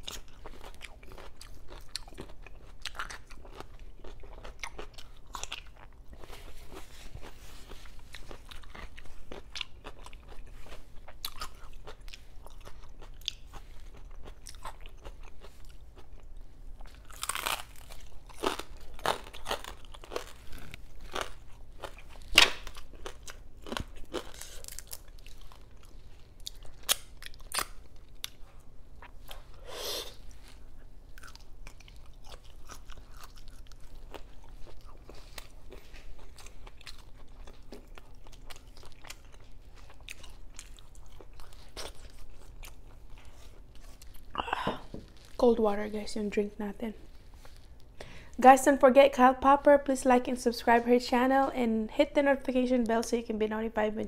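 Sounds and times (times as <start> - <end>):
wet chewing: 0.0 - 45.4
crunchy bites: 16.9 - 25.8, 31.2 - 42.9.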